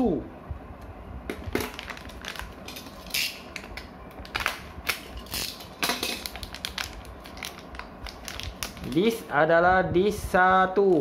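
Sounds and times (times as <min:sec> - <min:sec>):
packaging rustling: 0:01.4 - 0:09.3.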